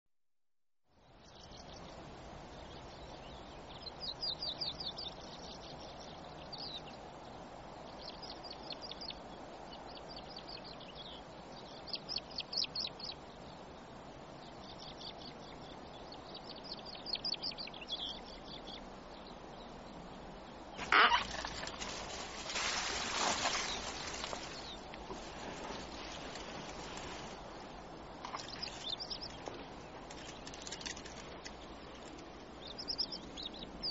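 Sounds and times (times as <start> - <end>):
outdoor hiss: 1.2 - 30.4
birds trilling: 20.8 - 27.7.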